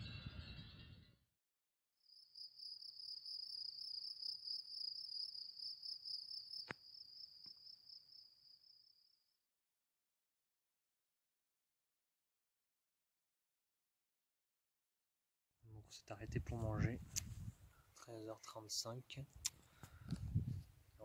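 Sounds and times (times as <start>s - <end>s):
wind noise: 0.0s - 1.2s, 16.1s - 17.8s, 19.4s - 21.0s
cricket chirring: 2.1s - 9.4s.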